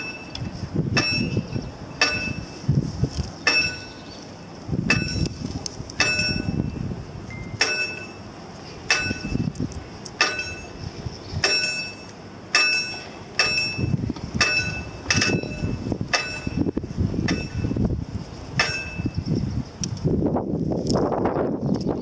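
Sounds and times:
level crossing warning bell: 0.0s - 2.7s, 3.4s - 5.4s, 6.0s - 9.5s, 10.2s - 10.8s, 11.4s - 17.8s, 18.6s - 19.2s.

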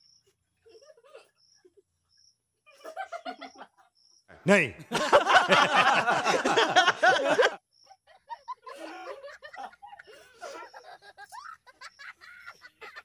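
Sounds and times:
quiet scattered laughing: 0.2s - 13.0s
loud laughter: 2.7s - 13.0s
voices: 4.3s - 13.0s.

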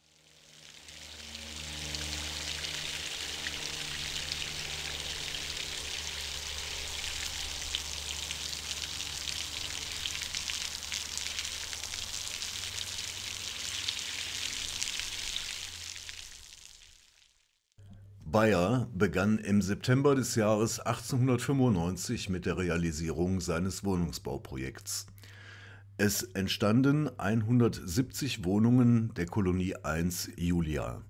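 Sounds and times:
fountain water splashing into basin: 0.0s - 17.6s.

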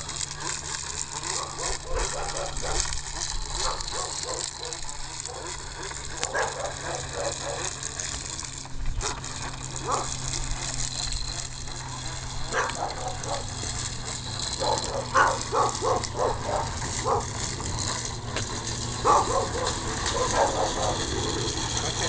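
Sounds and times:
dog barking: 14.6s - 17.3s, 19.0s - 21.0s.

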